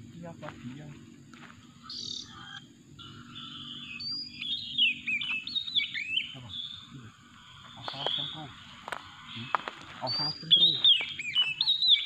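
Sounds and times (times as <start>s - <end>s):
bird singing whistles and chirps: 1.8s - 6.9s, 9.3s - 12.0s.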